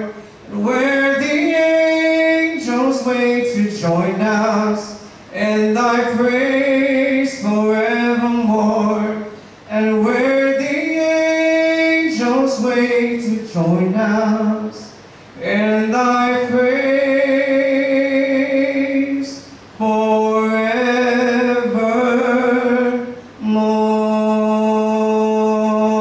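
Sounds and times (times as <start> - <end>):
man singing a hymn: 0.0 - 26.0.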